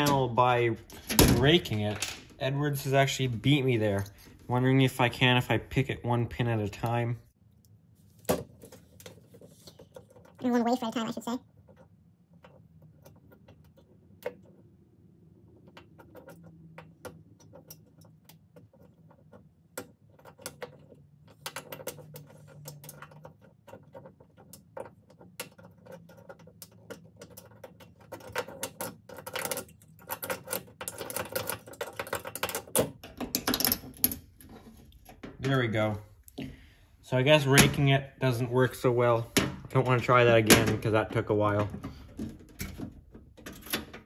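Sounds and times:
lock pick clicking and scraping: 0:15.4 - 0:35.4
lock rattling open: 0:41.6 - 0:44.0.

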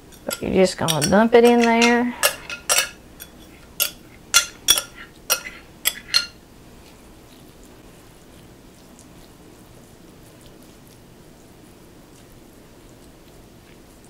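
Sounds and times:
spoon clinking against glass bowl: 0:00.0 - 0:06.4
spoon scraping food from bowl: 0:00.0 - 0:06.4.

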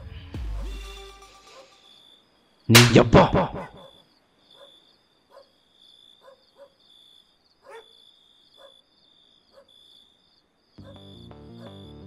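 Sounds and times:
distant dog barks: 0:00.5 - 0:00.8, 0:01.5 - 0:01.8, 0:03.4 - 0:06.9, 0:07.6 - 0:09.8, 0:10.8 - 0:11.9
crickets chirping: 0:01.4 - 0:02.7, 0:03.6 - 0:12.0.

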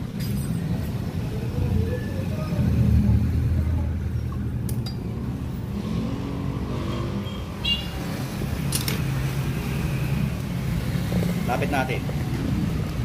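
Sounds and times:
traffic rumble: 0:00.0 - 0:13.0
small metallic clicks: 0:08.6 - 0:09.1.

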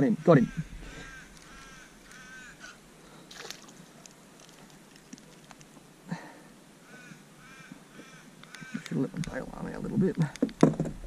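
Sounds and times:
crow cawing: 0:00.0 - 0:02.8, 0:06.8 - 0:09.0.

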